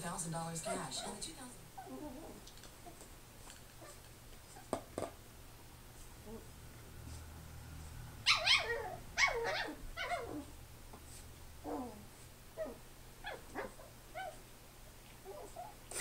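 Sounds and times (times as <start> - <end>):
puppy yipping and barking: 8.2 - 10.5, 12.6 - 14.5.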